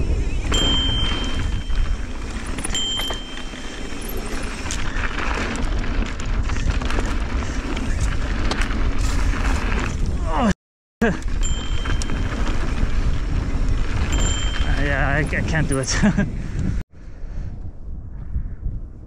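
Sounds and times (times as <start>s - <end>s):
bike tyres rolling over dirt: 0.0s - 10.4s, 11.2s - 16.5s
wind buffeting microphone: 0.0s - 10.5s, 11.3s - 19.0s
short high-pitched squeals: 0.3s - 5.4s.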